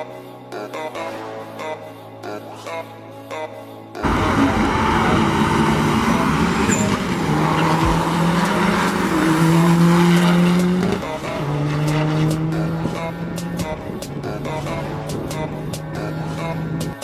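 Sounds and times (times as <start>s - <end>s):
diesel engine at full throttle: 4.0s - 17.0s.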